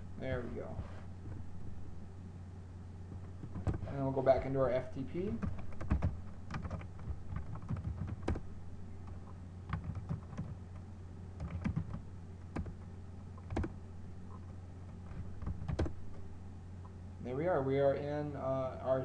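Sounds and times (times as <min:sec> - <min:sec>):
steady low hum: 0:00.0 - 0:19.0
computer keyboard typing: 0:05.4 - 0:10.6, 0:11.4 - 0:12.8, 0:13.4 - 0:13.8, 0:15.4 - 0:16.0.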